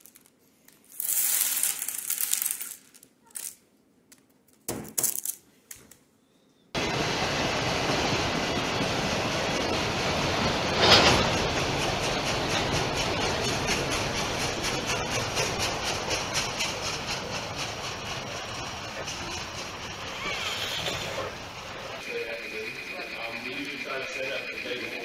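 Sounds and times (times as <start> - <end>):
wheels clacking over rail joints: 6.8 - 22.4
train wheels rumbling on rail: 6.8 - 25.0.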